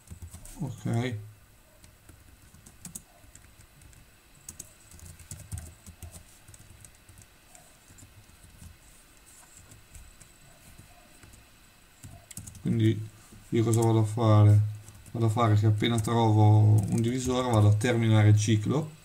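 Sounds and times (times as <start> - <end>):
computer keyboard typing: 0.0 - 1.0, 1.8 - 8.8, 9.7 - 11.4, 12.0 - 13.0, 13.6 - 14.1, 14.8 - 18.1.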